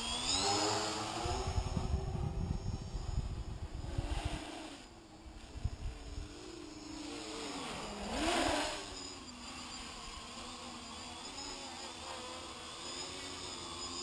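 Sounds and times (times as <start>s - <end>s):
quadcopter motors whining: 0.0s - 14.0s
rushing air: 1.2s - 4.9s.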